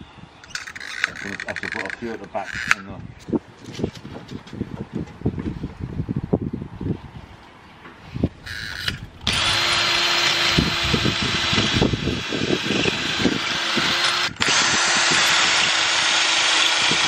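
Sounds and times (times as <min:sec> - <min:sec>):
cordless drill boring metal: 0:08.5 - 0:17.0.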